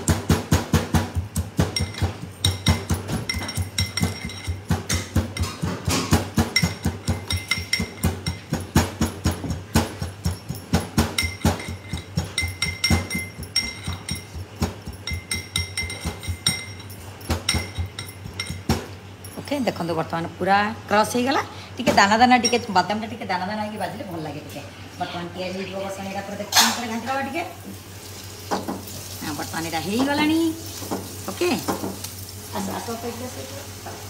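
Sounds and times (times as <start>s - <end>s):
metal pestle pounding in mortar: 0.0s - 18.9s.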